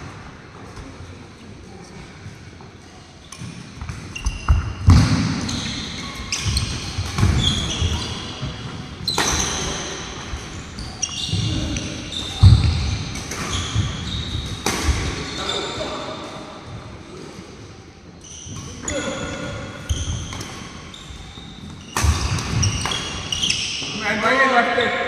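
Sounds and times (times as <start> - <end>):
shoes squeaking on floor: 3.3 - 16.2, 18.2 - 24.1
racket striking shuttlecock: 12.4 - 13.7.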